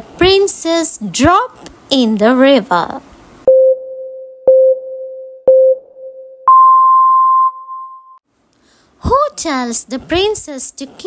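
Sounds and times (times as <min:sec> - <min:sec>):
long high electronic beep: 0:03.5 - 0:08.2
short low electronic beeps: 0:03.5 - 0:08.2.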